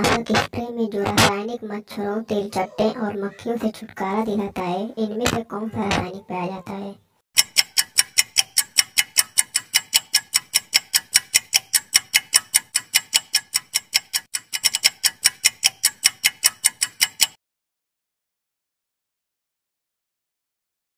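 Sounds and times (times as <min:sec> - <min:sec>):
countdown timer ticking: 0:07.4 - 0:17.4.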